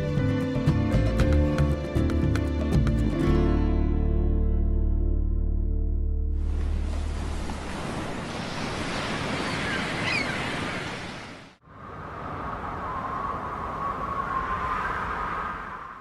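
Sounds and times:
ocean waves washing: 6.4 - 16.0.

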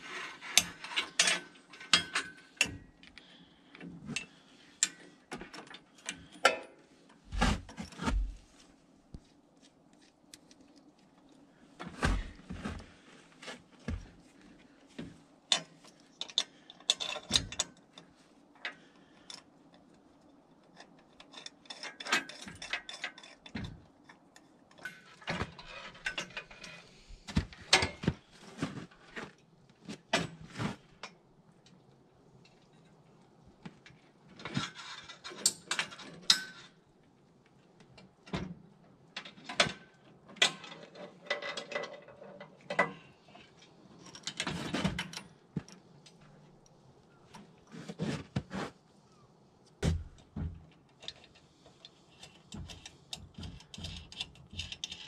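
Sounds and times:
steel parts clinking: 0.1 - 2.8.

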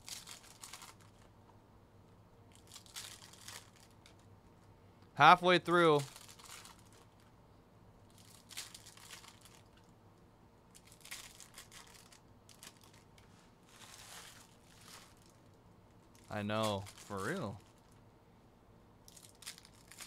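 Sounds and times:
foil wrapper crinkling: 0.0 - 1.3, 2.5 - 4.2, 5.7 - 7.2, 8.1 - 9.9, 10.7 - 17.9, 19.1 - 20.0.

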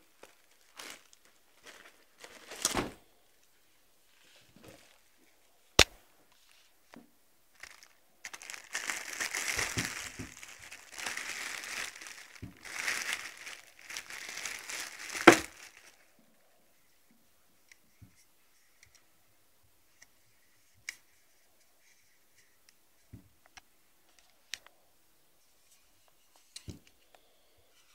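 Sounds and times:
packaging crinkling and rustling: 0.0 - 3.0, 7.6 - 16.1.

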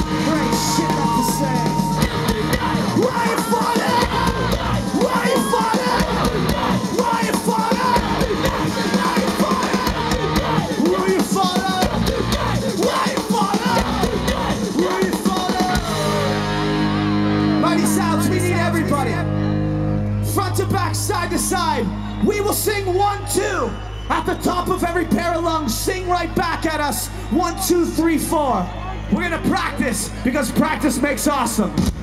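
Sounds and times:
punk rock band playing: 0.0 - 23.0
crowd yelling and singing along: 0.0 - 32.0.

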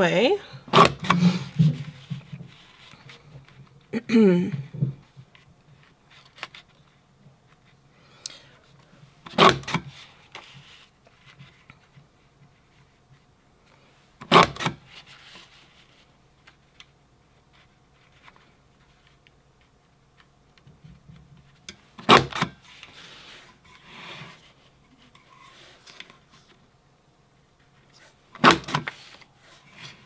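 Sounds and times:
paper rustling and sliding: 0.7 - 3.7, 5.2 - 7.8, 8.8 - 19.7, 21.4 - 26.6, 27.6 - 30.0
paper punch snapping clicks: 28.4 - 28.9.

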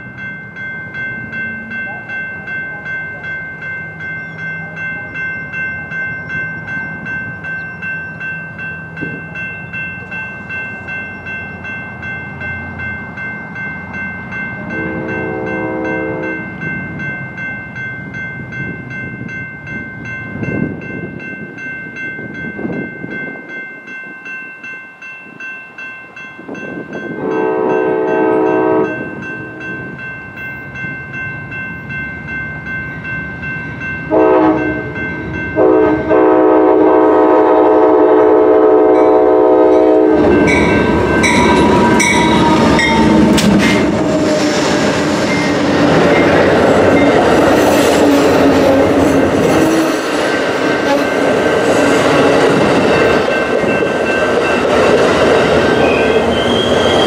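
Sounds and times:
locomotive approaching: 0.0 - 24.4, 25.2 - 57.0
railroad crossing bell ringing: 0.0 - 57.0
train horn: 14.6 - 16.6, 27.2 - 29.1, 34.1 - 35.0, 35.6 - 44.8, 47.7 - 50.1, 50.8 - 52.4.

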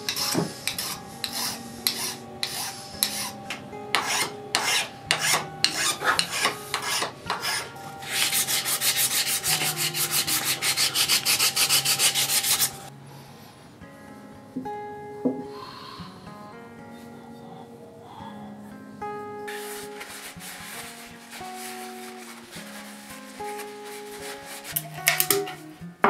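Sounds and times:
sandpaper sanding back and forth: 0.0 - 12.9, 19.5 - 24.8
hand file rasping on wood: 0.1 - 12.9.

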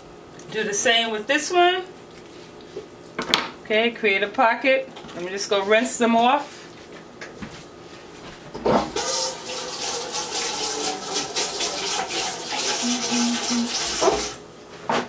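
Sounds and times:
tap water running: 8.8 - 14.4.

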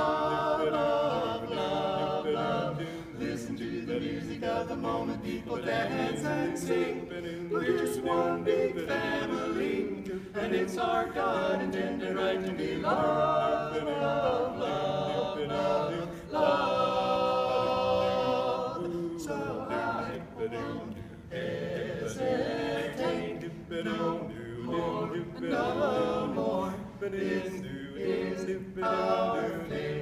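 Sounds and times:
male quartet singing a cappella: 0.0 - 30.0.

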